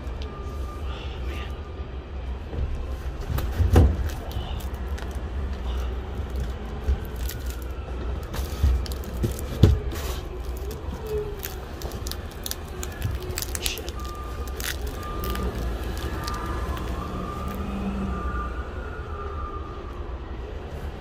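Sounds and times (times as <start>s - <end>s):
low engine rumble: 0.0s - 21.0s
cardboard and plastic scraping: 6.3s - 14.0s.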